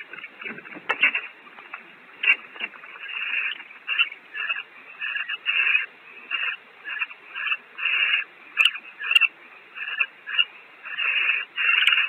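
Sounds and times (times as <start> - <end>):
barn owls hissing calls: 2.8 - 12.0.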